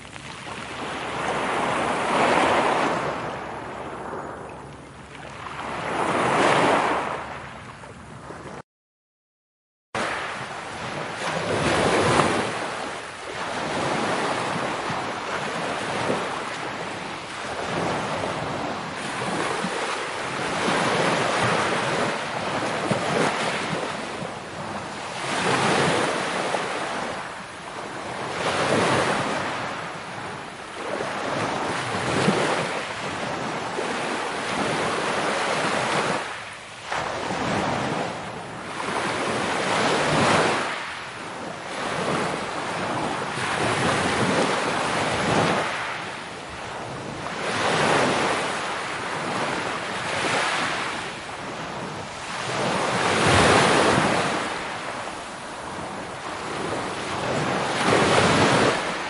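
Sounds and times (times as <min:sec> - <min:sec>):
sea waves breaking ashore: 0:00.0 - 0:08.6, 0:10.0 - 0:59.0.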